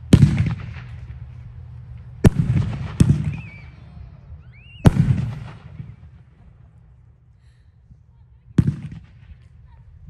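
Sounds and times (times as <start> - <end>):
fireworks bangs with echo: 0.0 - 1.4, 2.0 - 3.8, 4.8 - 6.4, 8.6 - 9.4.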